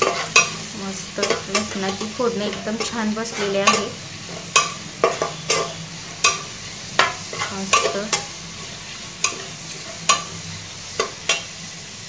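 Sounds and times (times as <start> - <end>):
spatula scraping metal pot: 0.0 - 11.5
frying in hot oil sizzling: 0.0 - 12.0.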